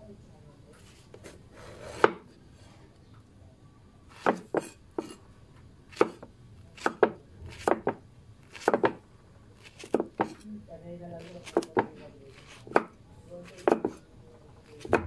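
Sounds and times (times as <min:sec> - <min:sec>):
knife chopping on wooden board: 0:01.6 - 0:02.3, 0:04.1 - 0:05.2, 0:05.9 - 0:09.0, 0:09.6 - 0:10.4, 0:11.2 - 0:14.0, 0:14.7 - 0:15.0.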